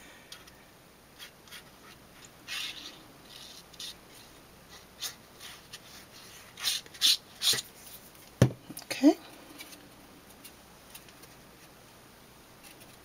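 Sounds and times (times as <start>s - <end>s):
glue bottle tip scratching and hissing: 1.2s - 7.6s.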